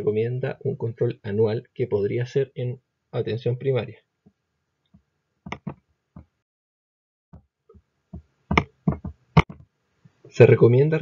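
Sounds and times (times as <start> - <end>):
sharp knocks and clicks: 4.9 - 6.3, 7.3 - 9.7.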